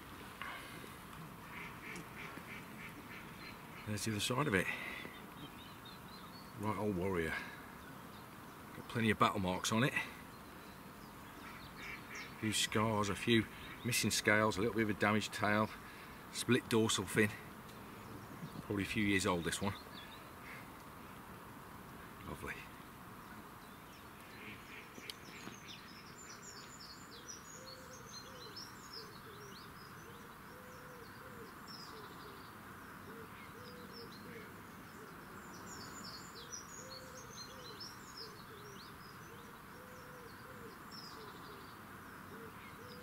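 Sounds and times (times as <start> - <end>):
low cooing bird notes: 17.8 - 19.1, 24.2 - 43.0.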